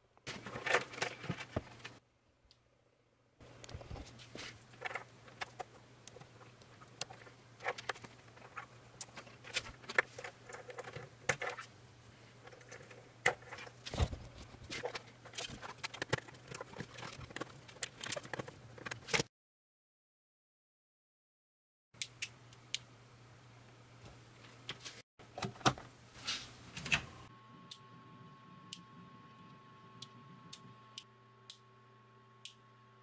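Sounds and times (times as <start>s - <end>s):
wires and connectors clicking: 3.4s - 11.7s, 12.4s - 19.3s, 28.6s - 31.7s.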